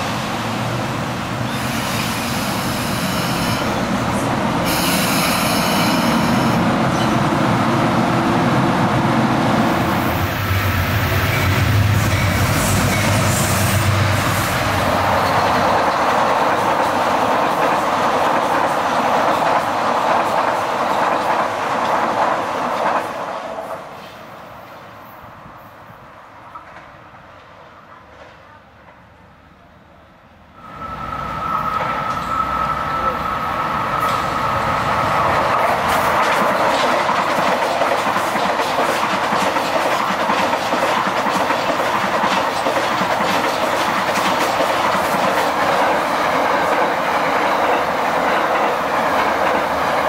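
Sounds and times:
diesel locomotive engine rumble: 0.0s - 17.1s
train wheels on rails: 0.0s - 29.2s, 30.6s - 50.0s
high wheel squeal: 1.5s - 3.9s, 4.6s - 7.2s, 30.6s - 34.7s.

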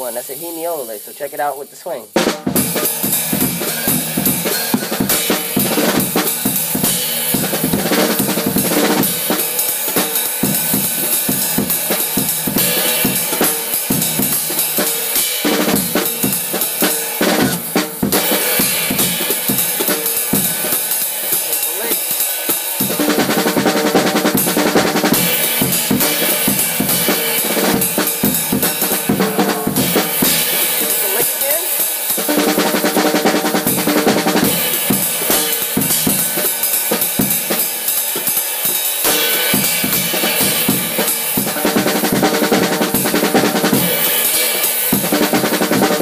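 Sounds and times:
drum kit played fast: 0.0s - 46.0s.

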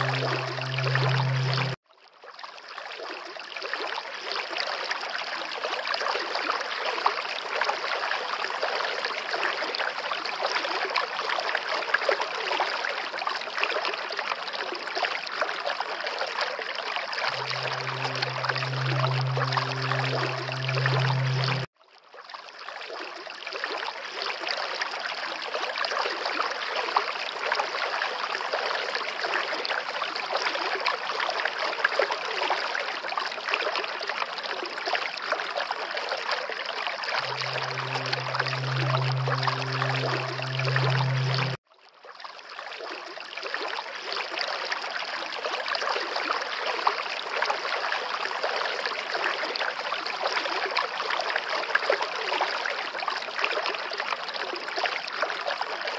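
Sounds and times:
low hum: 0.0s - 1.8s, 17.3s - 21.7s, 37.2s - 41.6s
running water: 0.0s - 1.8s, 17.2s - 21.7s, 37.2s - 41.6s.

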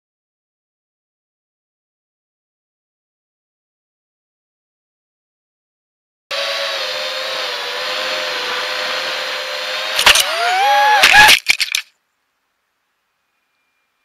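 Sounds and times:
quadcopter motors whining: 6.3s - 11.4s.

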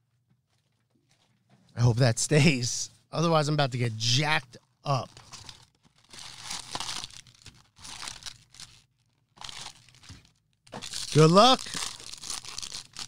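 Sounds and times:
cardboard tearing and crinkling: 5.1s - 8.8s, 9.4s - 13.0s.

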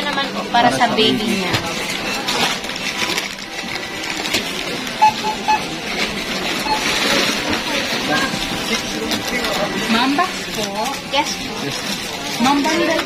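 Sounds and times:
plastic packets rustling: 1.3s - 13.0s
barcode scanner beeping: 2.9s - 13.0s.

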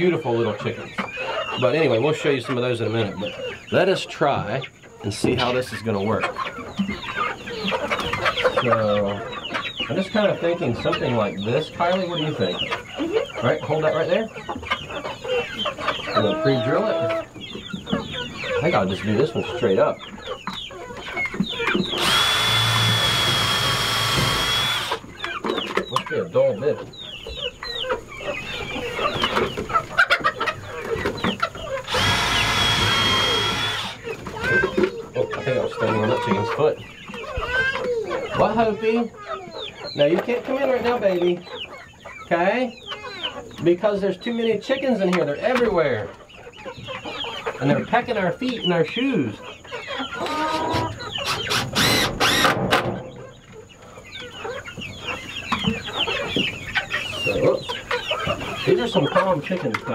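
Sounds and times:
chickens clucking: 0.0s - 59.9s
loud steady whir: 22.0s - 25.0s, 31.9s - 34.0s
harsh squawks: 31.7s - 34.6s, 50.2s - 52.6s.

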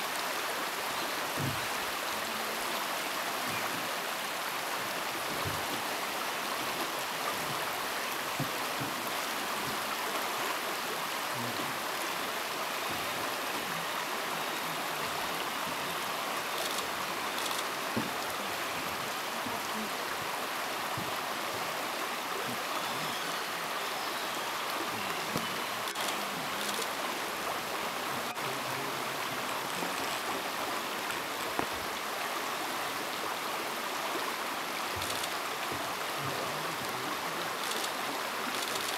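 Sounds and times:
river rushing over gravel: 0.0s - 38.9s
faint ticks: 35.0s - 35.4s.

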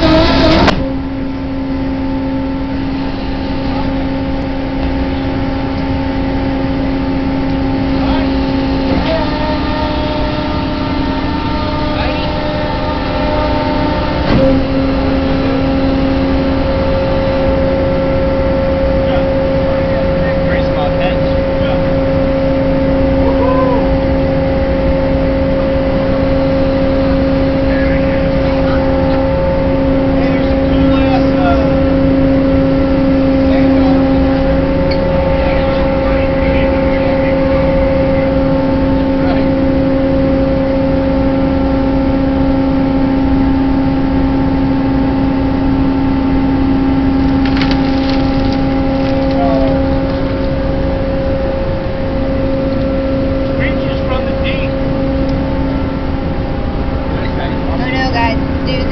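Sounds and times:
ship engine droning: 0.0s - 58.9s
rising and falling tone: 22.1s - 45.4s.

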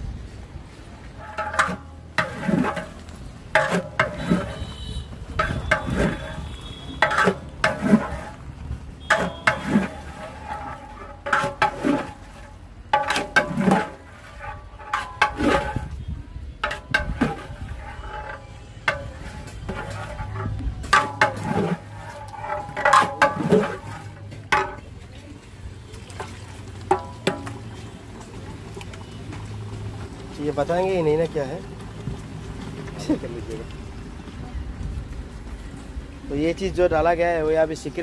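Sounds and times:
metal ladle scraping pot: 1.1s - 24.9s, 26.8s - 27.9s.

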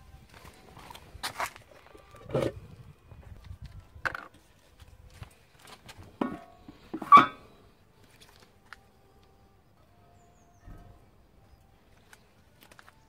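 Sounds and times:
metal pan knocking on buckets: 6.2s - 7.4s.

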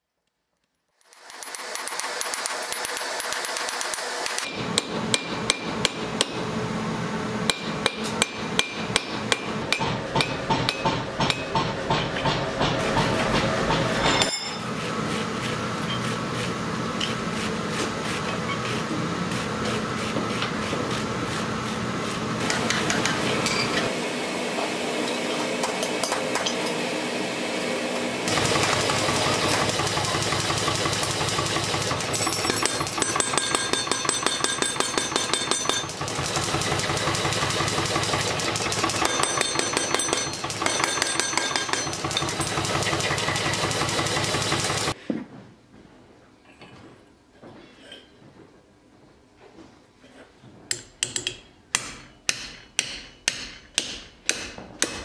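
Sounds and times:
power hammer striking steel: 1.1s - 6.6s, 7.4s - 14.8s, 22.4s - 24.0s, 25.0s - 26.9s, 28.2s - 45.0s, 50.7s - 55.0s.

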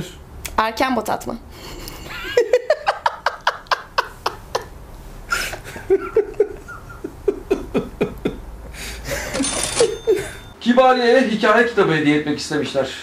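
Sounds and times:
man and woman laughing: 1.6s - 10.5s.

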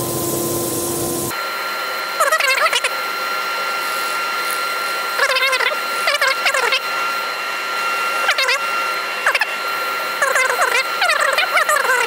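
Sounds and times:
steady machine whine: 0.0s - 12.0s
sanding disc squealing on wood: 3.7s - 12.0s.

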